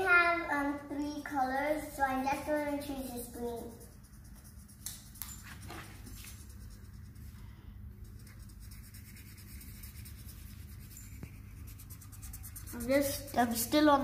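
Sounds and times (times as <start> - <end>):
steady low hum: 0.0 - 14.0
marker rubbing on paper: 2.4 - 7.3, 8.0 - 14.0.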